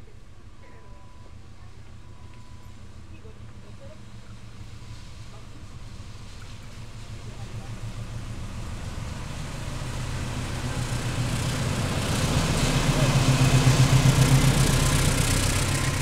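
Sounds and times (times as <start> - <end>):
locomotive diesel engine drone: 0.0 - 16.0.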